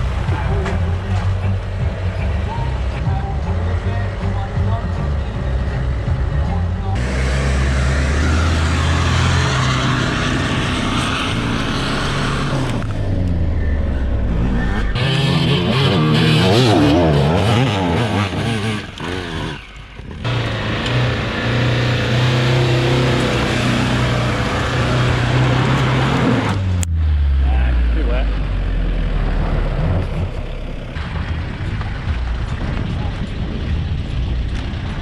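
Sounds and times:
pickup engine pulling steadily: 0.0 - 16.0
off-road vehicle engines under load: 0.0 - 35.0
dirt bike engine revving: 3.7 - 31.0.

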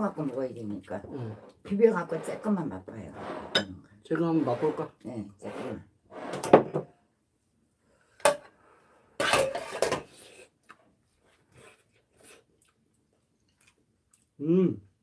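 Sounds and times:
metal spoon scraping ceramic bowl: 1.3 - 6.6, 9.2 - 10.0.

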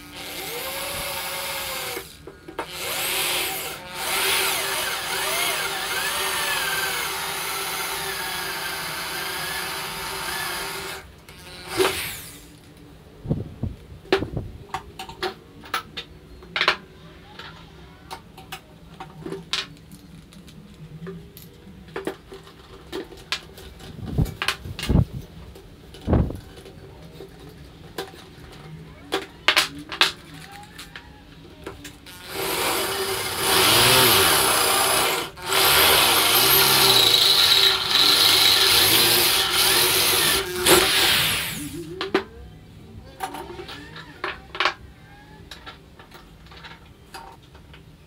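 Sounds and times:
electric drill boring into metal: 0.0 - 12.5, 32.1 - 41.8.

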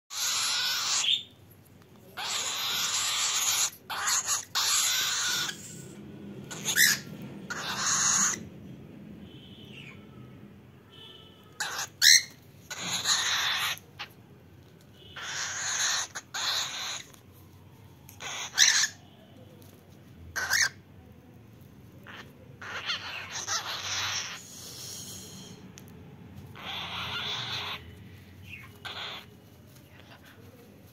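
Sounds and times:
cockatiel hissing: 0.1 - 1.2, 2.2 - 8.4, 11.6 - 14.1, 15.2 - 17.2, 18.2 - 19.0, 22.0 - 25.8, 26.4 - 30.9
harsh bird calls: 0.1 - 1.4, 2.2 - 8.6, 9.3 - 10.3, 11.0 - 14.2, 15.0 - 17.2, 18.2 - 19.1, 20.3 - 20.9, 22.0 - 25.6, 26.5 - 30.2.

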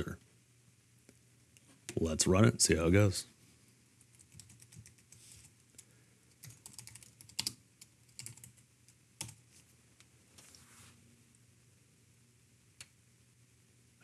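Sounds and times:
typing on keyboard: 4.0 - 9.4.

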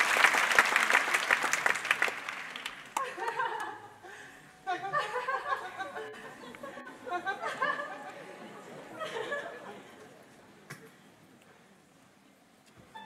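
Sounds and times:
audience applauding: 0.0 - 3.8.

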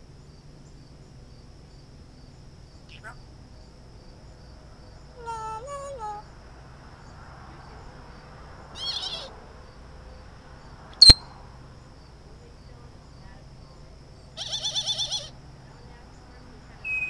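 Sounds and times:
sharp click: 11.0 - 11.2
warbling bird whistle: 11.0 - 11.3.

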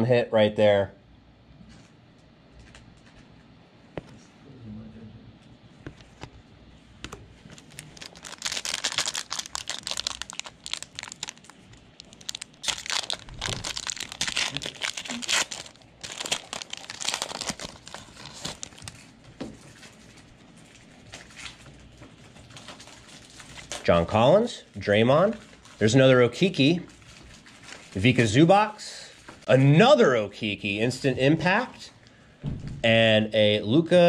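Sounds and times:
wrapper torn open and crinkled: 7.5 - 19.2, 22.4 - 23.9.

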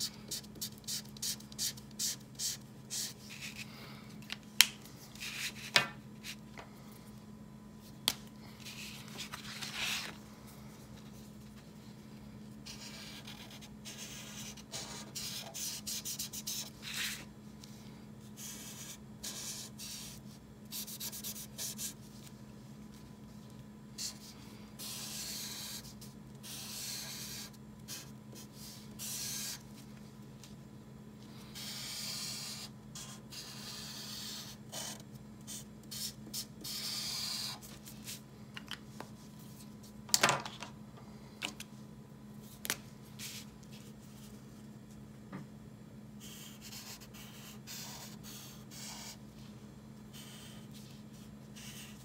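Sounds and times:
marker rubbing on paper: 12.7 - 17.2, 24.8 - 29.6, 31.6 - 37.6, 46.2 - 49.2, 51.6 - 52.0.

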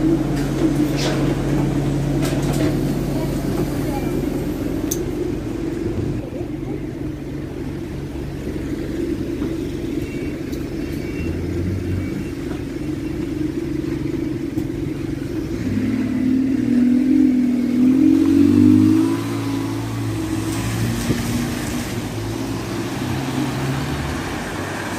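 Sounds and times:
bus engine running and revving: 0.0 - 24.9.

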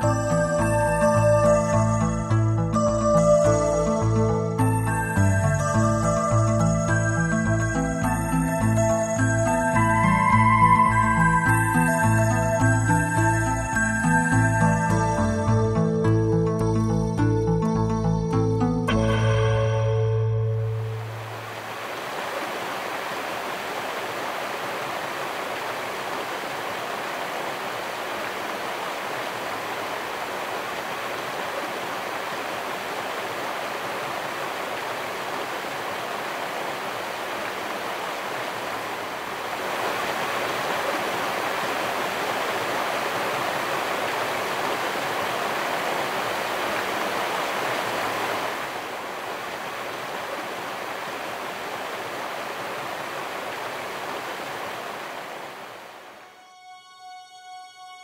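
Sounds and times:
flowing water rushing: 0.0 - 2.4, 19.6 - 56.4.

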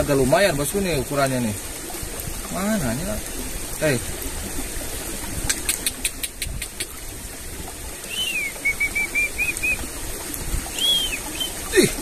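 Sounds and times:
small bird whistling calls: 8.0 - 9.8, 10.7 - 11.7.

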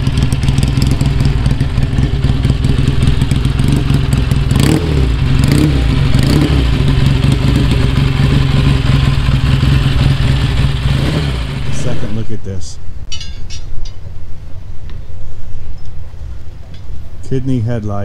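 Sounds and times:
motorcycle engine idling and revving: 0.0 - 12.4.

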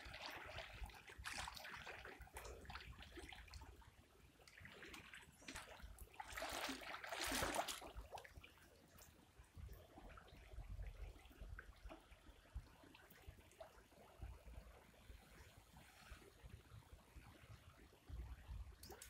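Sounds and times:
river water sloshing around legs: 4.5 - 8.2.

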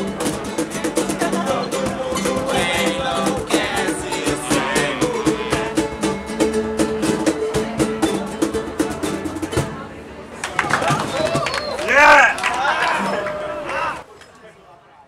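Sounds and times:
voices singing: 0.0 - 8.5
ukulele strummed fast: 0.0 - 10.0.

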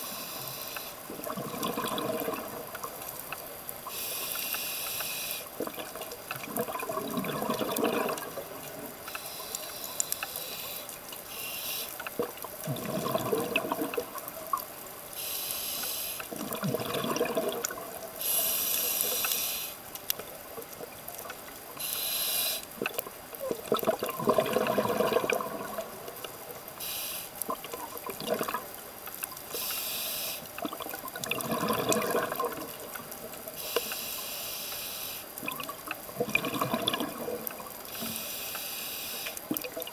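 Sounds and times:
regulator hissing inhalations: 0.0 - 1.0, 3.9 - 5.5, 9.2 - 12.0, 15.2 - 16.3, 18.2 - 19.8, 21.8 - 22.7, 26.8 - 27.4, 29.5 - 30.5, 33.6 - 35.3, 37.9 - 39.4
bubbling exhalations underwater: 1.1 - 3.0, 5.6 - 8.9, 12.2 - 14.2, 16.3 - 18.1, 22.8 - 26.1, 27.4 - 28.7, 30.6 - 33.1, 35.4 - 37.7.

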